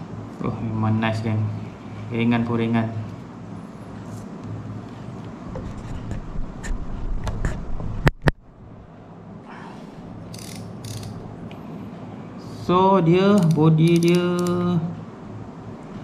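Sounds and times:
fishing reel cranked whirring: 10.3s - 11.2s
sharp clicks: 10.3s - 11.2s, 13.3s - 14.7s.

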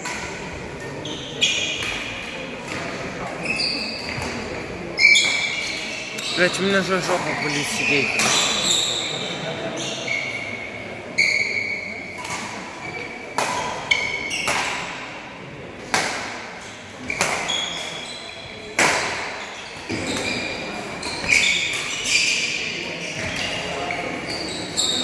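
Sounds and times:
shoes squeaking on floor: 3.4s - 4.4s, 5.0s - 10.5s, 11.2s - 12.0s, 17.1s - 18.5s, 19.5s - 25.0s
racket hitting shuttlecock: 13.4s - 15.0s, 15.8s - 16.5s, 17.2s - 17.8s, 18.8s - 19.3s.

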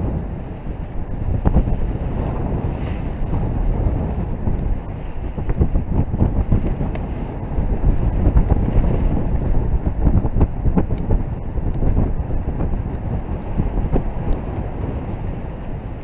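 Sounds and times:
wind buffeting microphone: 0.0s - 16.0s.

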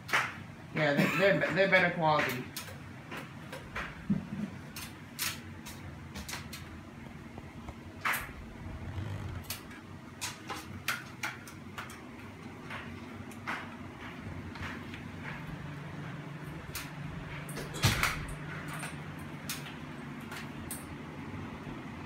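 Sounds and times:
ceiling fan parts clicking and knocking: 0.0s - 22.0s.

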